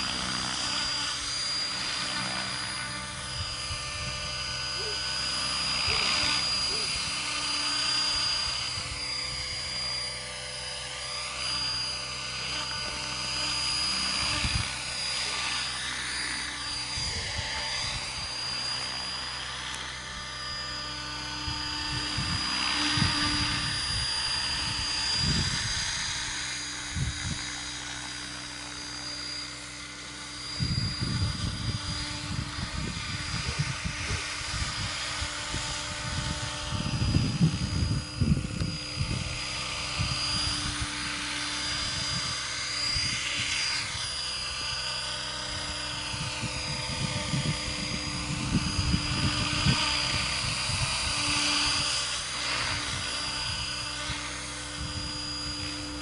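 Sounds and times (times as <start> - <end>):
model helicopter motor whine: 0.0 - 56.0
rotor blades humming: 0.0 - 56.0
wind rumble on microphone: 2.5 - 4.6, 14.1 - 14.8, 16.9 - 18.3, 21.4 - 27.6, 30.5 - 44.1, 45.4 - 56.0.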